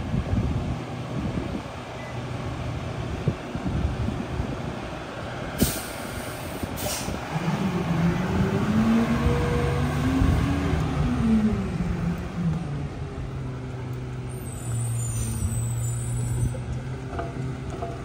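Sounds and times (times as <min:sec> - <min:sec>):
diesel engine revving: 0:00.0 - 0:18.0
air brake hisses: 0:05.6 - 0:07.2, 0:14.4 - 0:16.6.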